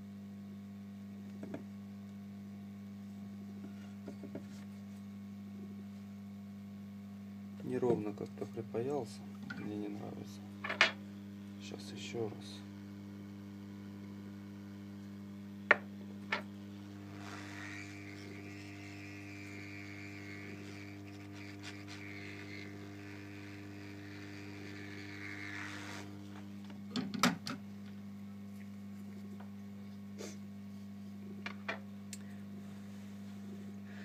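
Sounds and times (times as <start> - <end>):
electrical hum: 0.0 - 34.0
hot-air station hissing: 30.2 - 30.4.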